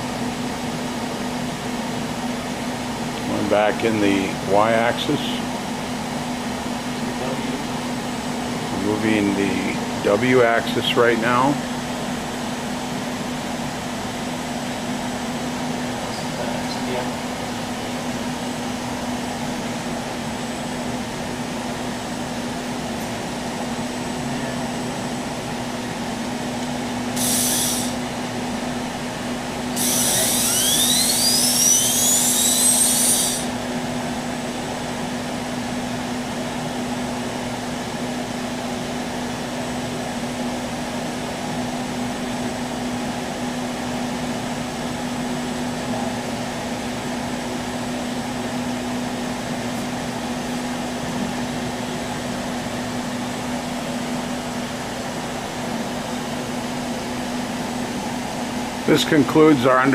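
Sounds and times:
grinding machine humming: 0.0 - 59.9
whine rising in pitch: 29.7 - 33.6.

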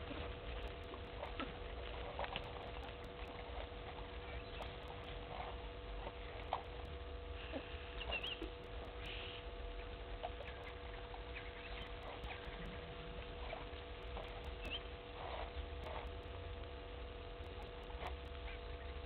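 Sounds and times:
faint ticks and pattering: 0.0 - 19.0
steady low hum: 0.0 - 19.0
high chirps: 6.4 - 9.4, 10.2 - 16.4.

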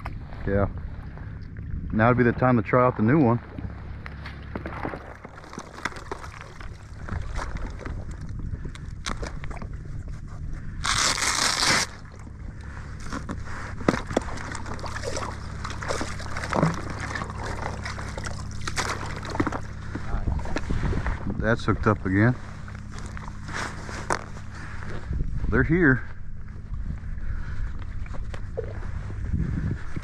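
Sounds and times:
water sloshing around legs: 3.4 - 21.2, 22.3 - 25.0.

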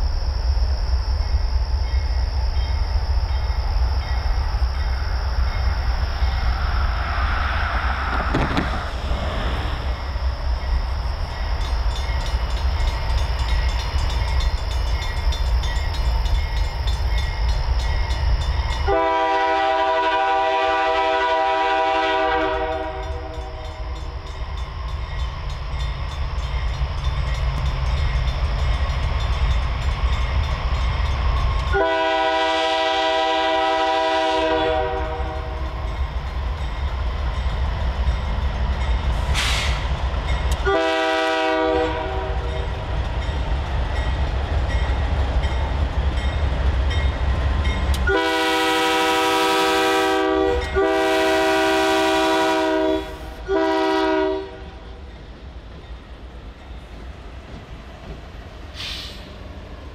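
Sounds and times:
thin steady high tone: 0.0 - 7.2, 9.7 - 18.9
train low rumble: 0.0 - 59.9
locomotive air horn blast: 18.9 - 23.4, 31.8 - 35.6, 40.6 - 42.6, 48.0 - 54.8.

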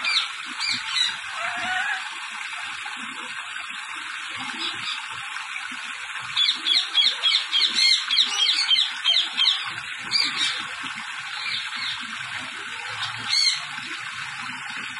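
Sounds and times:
parakeets squawking: 0.0 - 2.0, 6.4 - 10.6, 11.4 - 12.0, 12.9 - 13.7
hose spraying water: 0.0 - 14.9.

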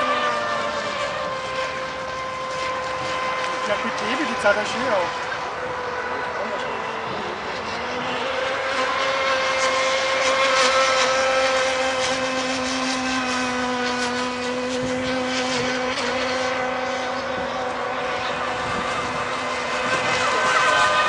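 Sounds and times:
model boat motor running: 0.0 - 21.0.

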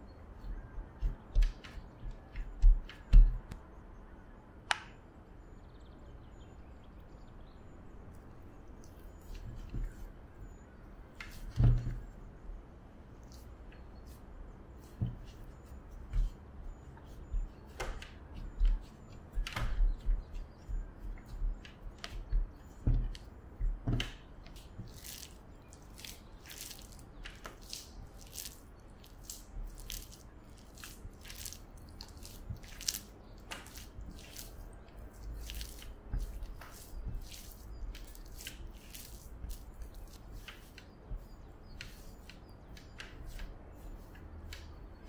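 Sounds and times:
sticky dough smacks: 17.3 - 45.0.

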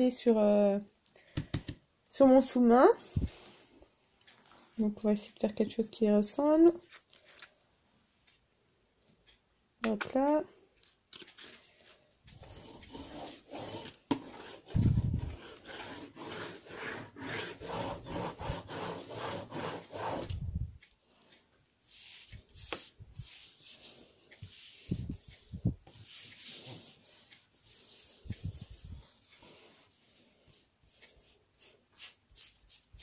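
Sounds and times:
rubber roller rolling through paint: 12.3 - 20.4, 21.9 - 30.2.

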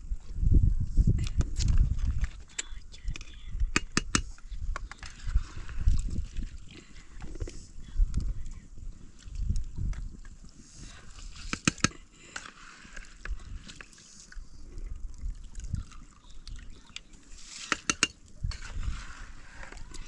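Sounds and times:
wet rice sloshing and plopping: 12.2 - 20.0.

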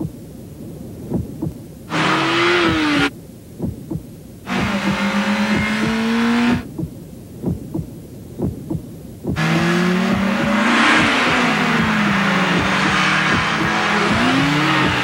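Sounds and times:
heartbeat-like thumping pulse: 0.0 - 0.2, 1.0 - 1.6, 2.6 - 15.0
car engine revving: 1.9 - 3.1, 4.5 - 6.7, 9.4 - 15.0
road noise whoosh: 9.4 - 15.0.

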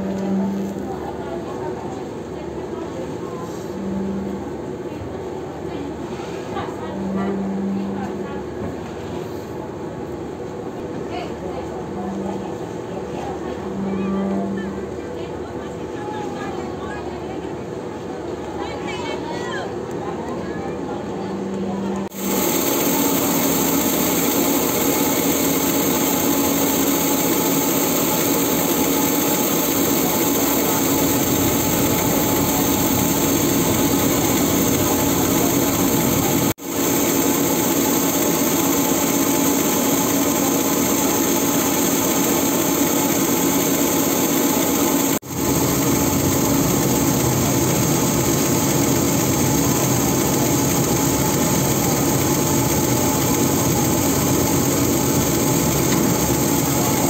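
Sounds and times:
ship engines droning: 21.4 - 57.0
propeller wash churning water: 22.1 - 57.0.

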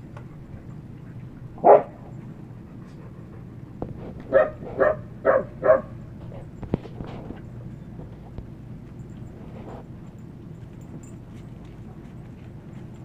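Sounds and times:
dog barking: 1.6 - 2.0, 4.3 - 6.0.

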